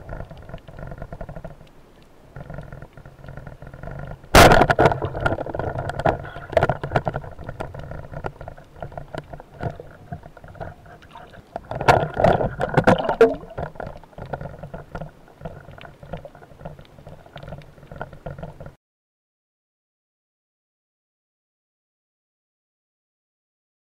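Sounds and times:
sharp underwater clicks and knocks: 0.0 - 18.8
water splashing and rushing: 0.0 - 18.8.

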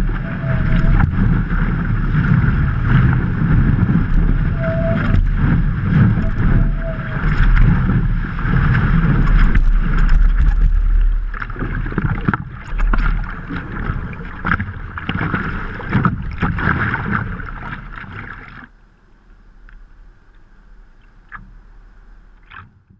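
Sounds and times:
wind buffeting microphone: 0.0 - 18.5
water rushing and splashing: 0.0 - 18.8.

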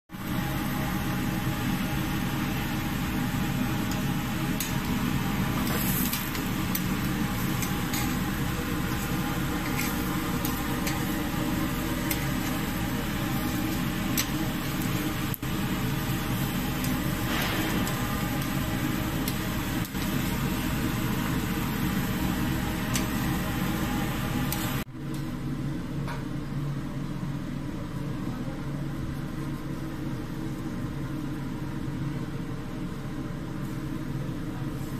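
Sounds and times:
fan-like mechanical hum: 0.1 - 34.9
vegetables sizzling on a grill: 1.3 - 24.8.

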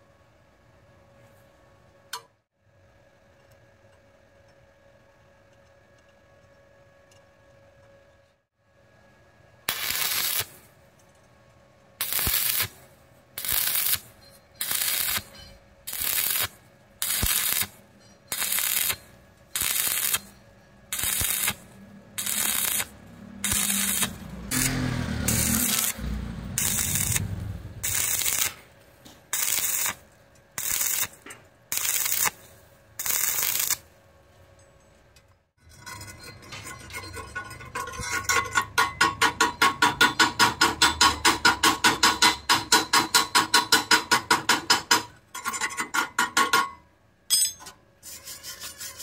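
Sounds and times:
welding arc crackling: 9.7 - 10.6, 12.0 - 12.8, 13.4 - 15.3, 15.9 - 20.3, 20.9 - 32.4, 33.0 - 33.9
low rumble: 22.9 - 28.4.

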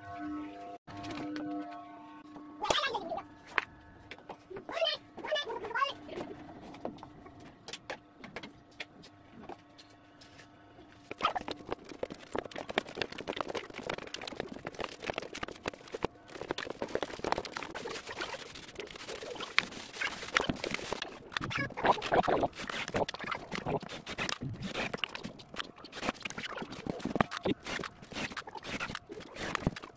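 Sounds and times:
plastic wrap crinkling: 11.1 - 29.9.

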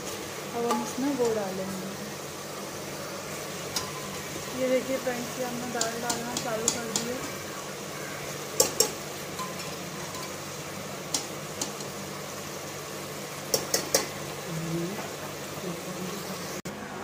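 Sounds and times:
spoons clinking on metal: 8.6 - 10.4.

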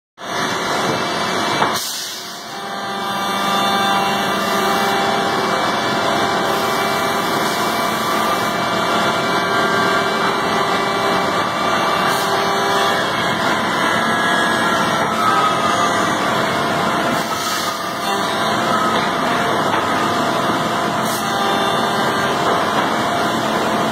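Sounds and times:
cnc machine cutting wood: 0.2 - 23.9
whining spindle tones: 2.5 - 17.0.

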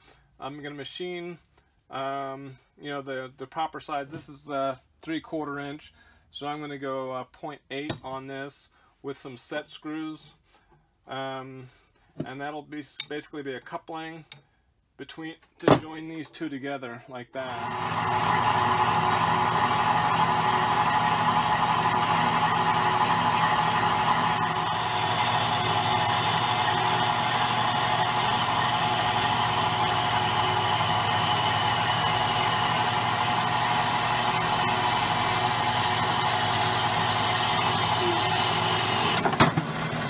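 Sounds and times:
bandsaw cutting steel bar: 17.4 - 40.0.

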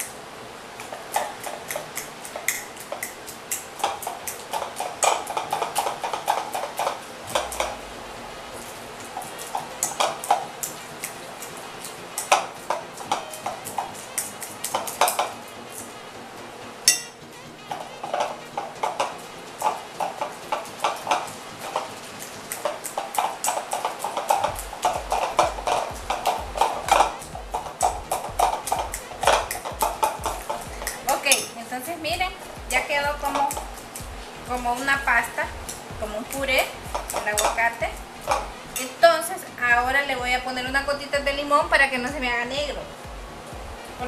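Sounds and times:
fork scraping against a bowl: 0.8 - 7.7.

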